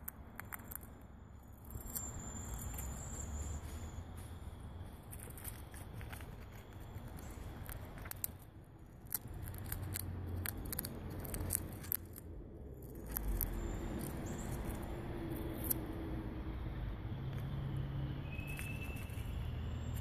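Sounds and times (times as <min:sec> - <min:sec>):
chipmunk cracking peanut shell: 0:00.0 - 0:03.1, 0:04.8 - 0:15.9, 0:18.3 - 0:20.0.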